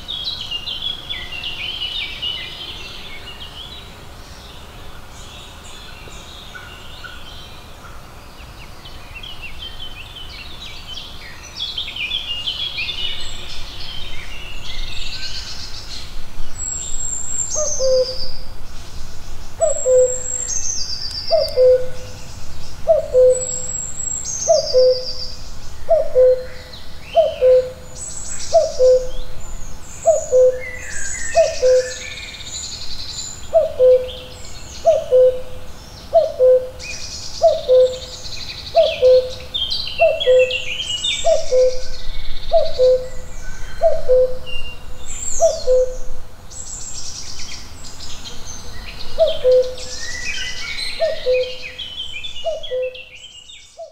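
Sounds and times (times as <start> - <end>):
songbirds singing: 0.0 - 53.9
bird hooting call: 17.2 - 18.5, 19.6 - 22.2, 22.8 - 29.3, 30.0 - 32.2, 33.5 - 44.7, 45.3 - 46.1, 49.2 - 53.2.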